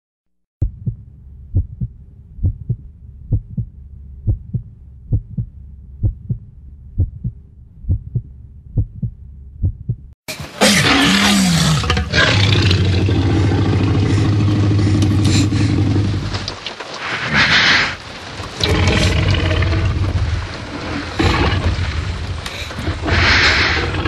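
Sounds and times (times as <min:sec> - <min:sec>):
heartbeat thumps: 0:00.6 - 0:10.2
low rumble: 0:00.6 - 0:10.2, 0:11.8 - 0:24.0
loud roar: 0:10.6 - 0:16.5, 0:18.6 - 0:22.1.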